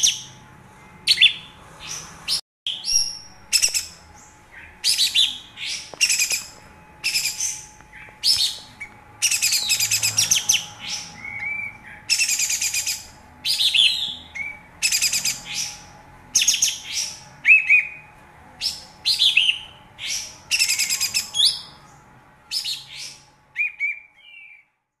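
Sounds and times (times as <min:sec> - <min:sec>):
bird chattering song: 0:00.0 - 0:00.4, 0:01.0 - 0:24.7.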